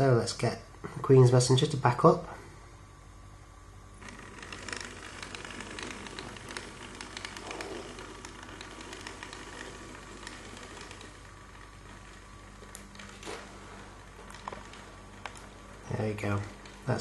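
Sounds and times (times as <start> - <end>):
model train motor crackling hiss: 4.0 - 17.0.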